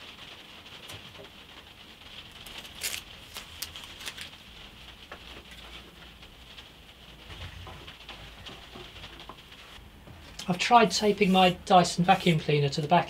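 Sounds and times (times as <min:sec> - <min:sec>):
tape rustling: 0:02.0 - 0:12.4.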